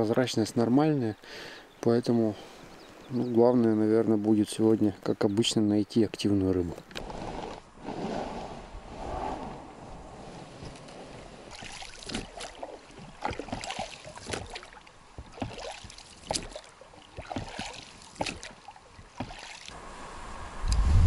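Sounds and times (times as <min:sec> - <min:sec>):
oars splashing in water: 0:10.1 - 0:19.8.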